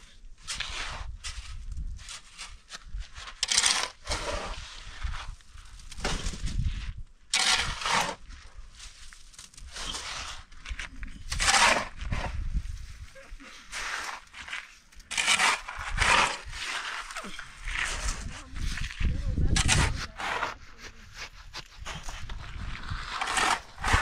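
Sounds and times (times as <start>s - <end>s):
shovel scraping sand and gravel: 0.0s - 24.0s.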